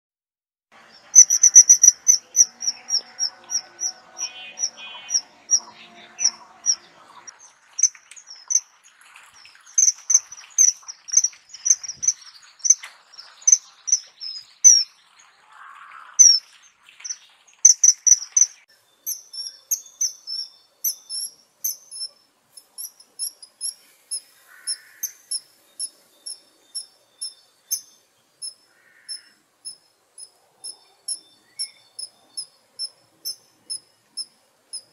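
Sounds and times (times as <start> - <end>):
kingfisher calling: 0.9 - 8.7, 9.8 - 12.8, 13.5 - 14.9, 16.2 - 21.3.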